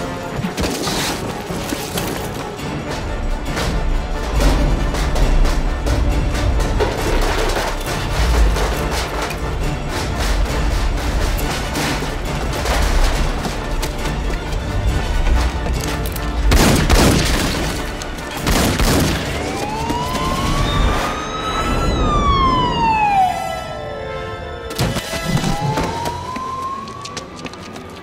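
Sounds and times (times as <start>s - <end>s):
film score music: 0.0s - 28.0s
heavy booming hits: 16.4s - 19.4s
police siren wailing: 19.1s - 27.9s.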